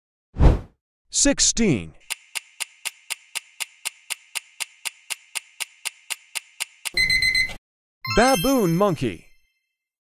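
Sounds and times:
clock ticking: 2.0 - 7.4.

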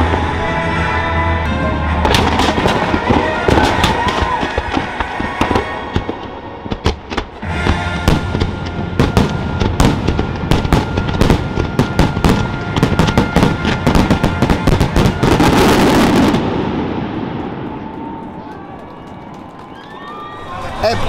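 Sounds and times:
fireworks bangs and booms: 2.0 - 18.4.

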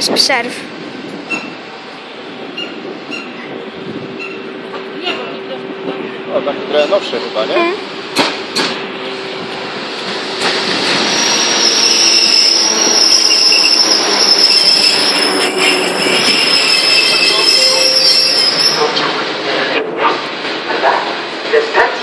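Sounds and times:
train wheels rumbling on rails: 0.0 - 22.0
train brakes squealing: 2.5 - 3.5, 4.2 - 4.5, 10.7 - 19.0.

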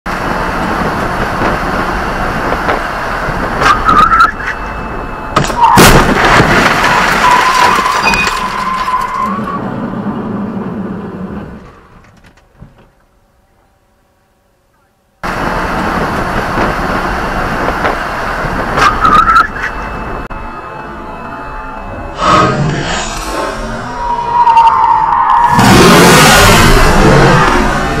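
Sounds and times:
loud crash impact: 5.4 - 8.9
vehicle cab noise: 10.4 - 13.7
steady high squeal: 18.7 - 28.0.

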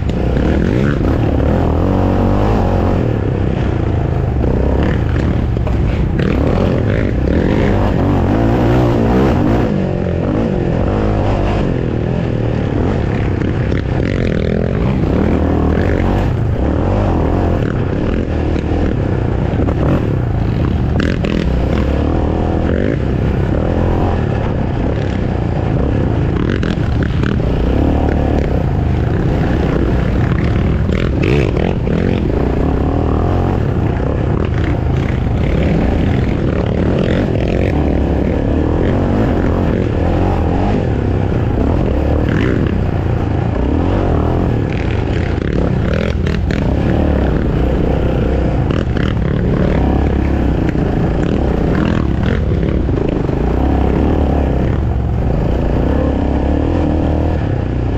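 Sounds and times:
atv engine revving: 0.0 - 57.9.

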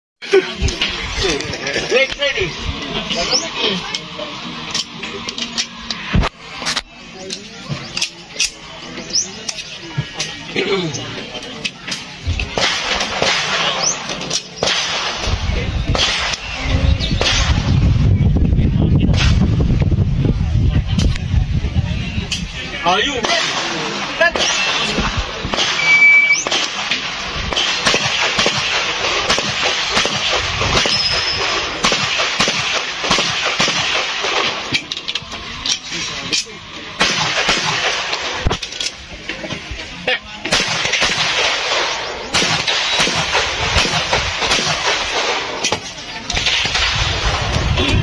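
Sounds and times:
pistol shots: 12.5 - 15.3, 15.9 - 16.5, 23.2 - 34.8, 37.0 - 38.6, 40.5 - 47.7
low rumble: 15.2 - 22.3.

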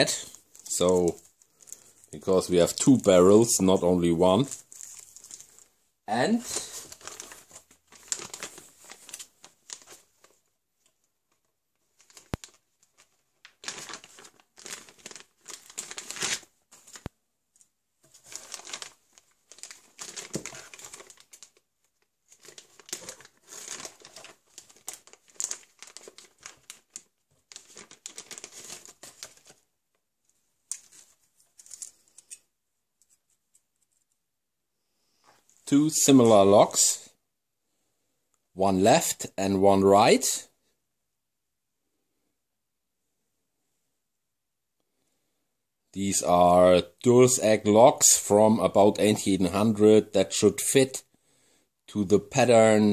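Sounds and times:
plastic bag crinkling: 0.0 - 29.7, 30.6 - 32.5.

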